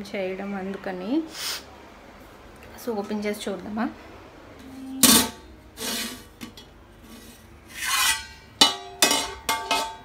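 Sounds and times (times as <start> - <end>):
metal pot lid clanking: 5.0 - 6.7, 7.8 - 10.0.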